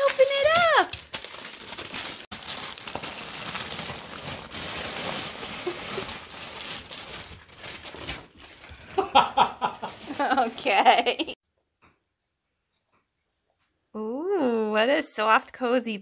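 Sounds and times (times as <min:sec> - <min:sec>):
plastic bag crinkling: 0:00.0 - 0:09.2, 0:09.8 - 0:10.8.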